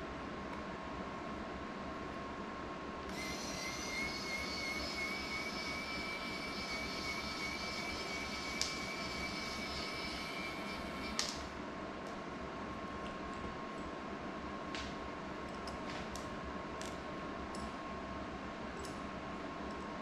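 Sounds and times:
small electric motor whining: 0:03.1 - 0:11.3.

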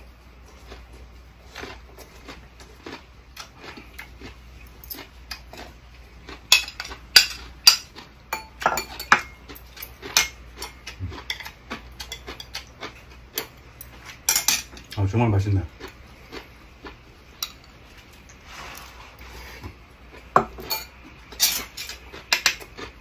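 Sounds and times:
utensils clinking on ceramic plates: 0:06.5 - 0:12.7, 0:13.4 - 0:15.0, 0:20.3 - 0:22.7.

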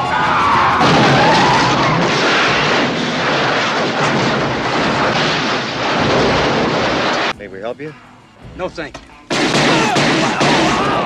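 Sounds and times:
car crash rumbling clatter: 0:00.0 - 0:07.4.

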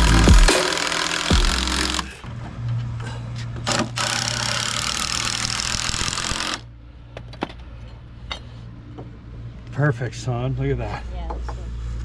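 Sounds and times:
impact driver driving a screw: 0:00.4 - 0:02.2.

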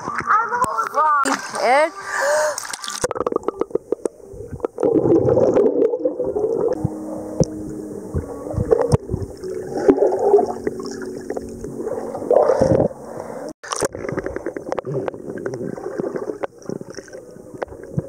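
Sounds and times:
water bubbling and gurgling: 0:02.2 - 0:18.0
faint steady hum: 0:03.8 - 0:13.5.

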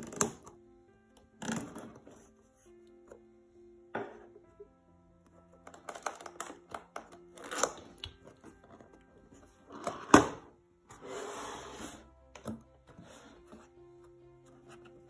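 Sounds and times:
soft background music: 0:00.0 - 0:15.0
cardboard sliding on tabletop: 0:10.9 - 0:12.1, 0:12.9 - 0:13.7.

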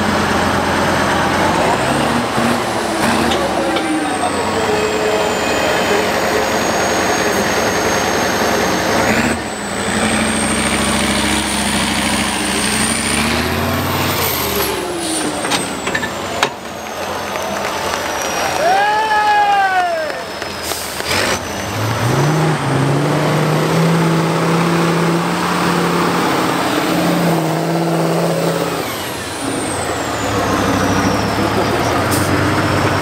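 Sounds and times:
truck engine revving: 0:00.0 - 0:18.7, 0:20.2 - 0:33.0.

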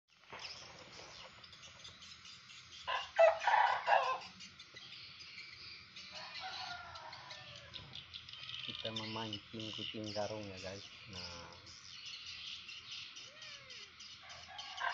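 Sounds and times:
birds chirping faintly: 0:00.1 - 0:14.9
loud animal calls: 0:13.2 - 0:14.9.

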